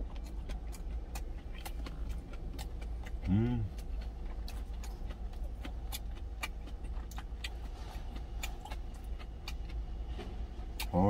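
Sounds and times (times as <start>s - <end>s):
chewing: 0.0s - 11.0s.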